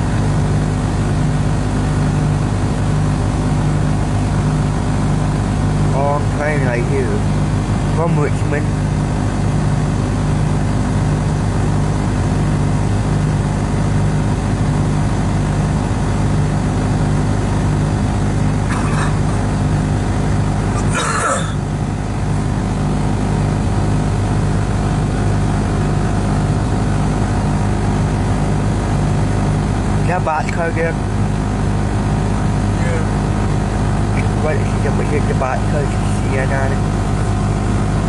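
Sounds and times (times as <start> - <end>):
car engine idling: 15.8 - 38.0.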